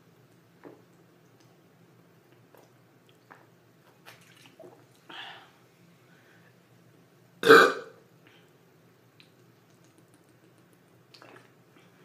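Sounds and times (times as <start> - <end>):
loud burp: 7.4 - 8.0
gulping soda: 11.0 - 11.7.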